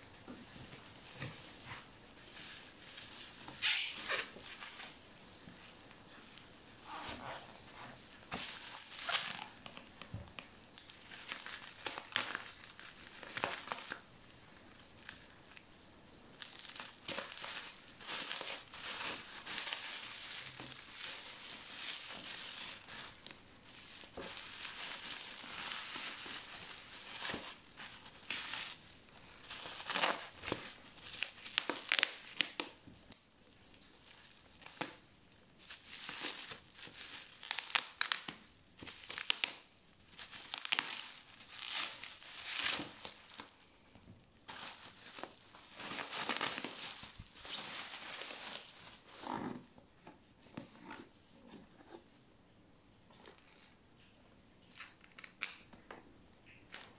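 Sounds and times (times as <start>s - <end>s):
bubble wrap crinkling and crackling: 0.0s - 52.2s, 53.0s - 56.9s.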